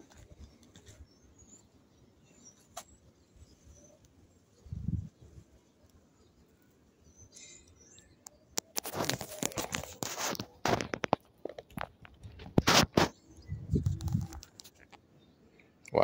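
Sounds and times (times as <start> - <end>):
fingers rubbing on phone: 8.7 - 11.2, 12.4 - 14.6.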